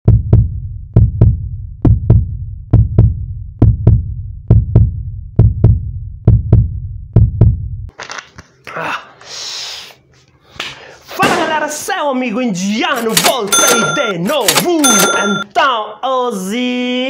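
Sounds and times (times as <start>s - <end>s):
heartbeat thumps: 0.1s - 7.8s.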